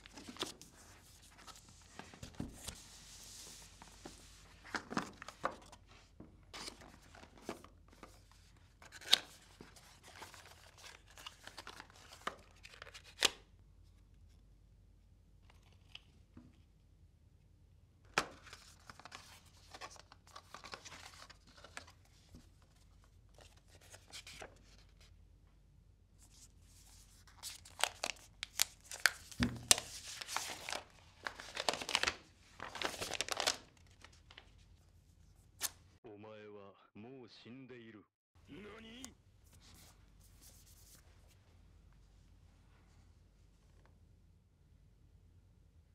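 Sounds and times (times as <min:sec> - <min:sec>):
packaging rustling and tearing: 0:08.8 - 0:13.2, 0:27.3 - 0:34.4.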